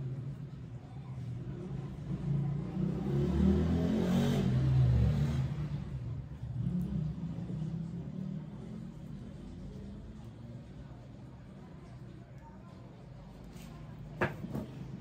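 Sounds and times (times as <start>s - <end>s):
vehicle engine rumble passing: 1.4s - 11.9s.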